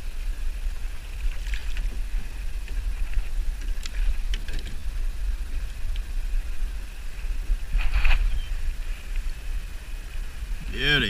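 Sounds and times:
light water noise: 0.0s - 11.0s
wind buffeting microphone: 0.0s - 11.0s
water splashes and knocks: 1.2s - 4.9s.

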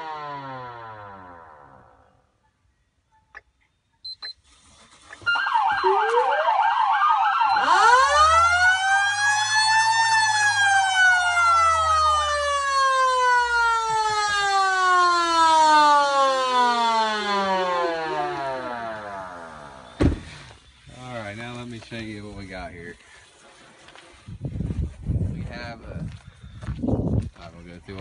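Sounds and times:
electronic siren yelp: 0.0s - 2.1s, 5.2s - 20.0s
mechanical siren wailing: 0.0s - 2.2s, 5.2s - 20.0s.

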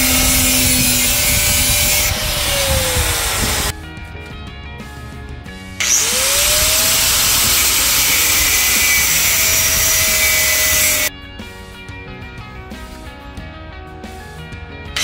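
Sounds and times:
angle grinder grinding steel: 0.0s - 3.7s, 5.8s - 11.1s.

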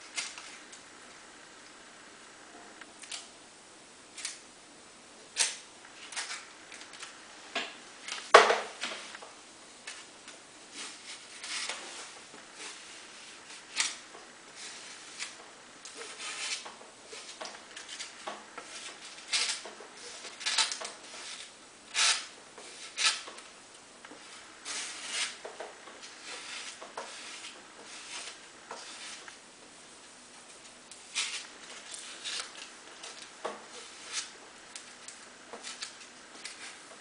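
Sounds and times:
rubbing and scraping on sheet material: 9.8s - 23.4s, 24.1s - 29.5s, 31.0s - 37.0s.

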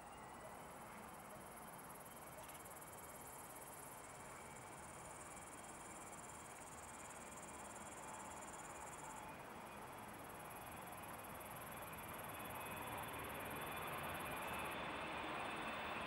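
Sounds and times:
distant airport hum: 7.3s - 16.0s.

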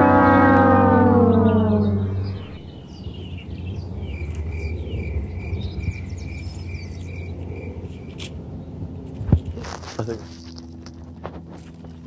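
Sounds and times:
steady low hum: 0.0s - 12.0s
small birds chirping: 1.1s - 8.7s.

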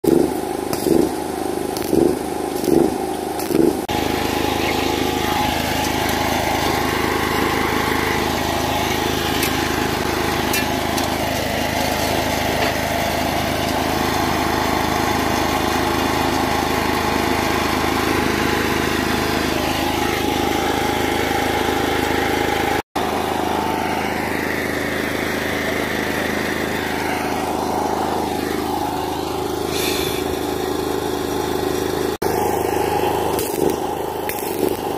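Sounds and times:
mechanical engine drone: 0.0s - 34.9s
faint voices: 4.2s - 6.4s.

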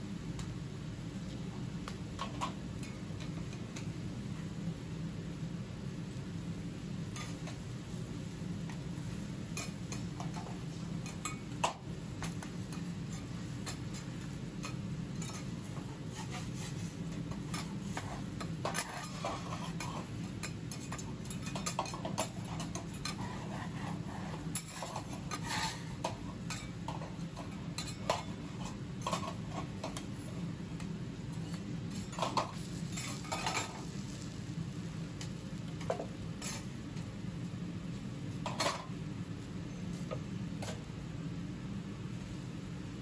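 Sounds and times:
metal spatulas scraping on griddle: 13.1s - 30.0s, 31.4s - 34.2s, 35.8s - 36.7s.

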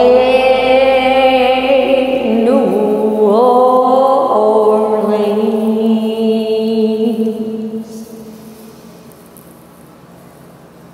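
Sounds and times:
person singing a long held note: 0.0s - 8.0s.

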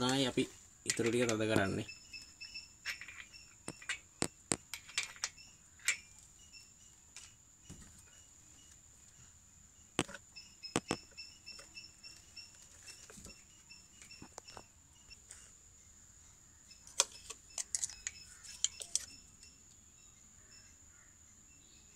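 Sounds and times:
metal parts clicking and tapping: 0.0s - 6.3s, 10.0s - 13.4s, 16.8s - 19.5s
insect chirping: 0.0s - 21.9s.

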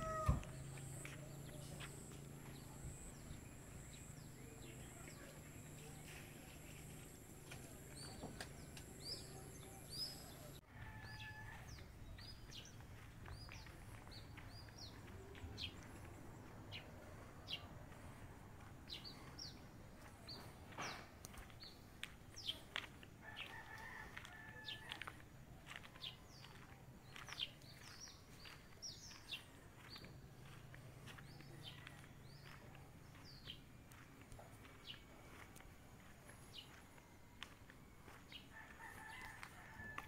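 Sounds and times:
distant rooster crowing: 0.0s - 0.6s, 10.3s - 11.9s, 23.2s - 25.2s, 37.4s - 40.0s
small birds chirping: 0.0s - 39.7s.

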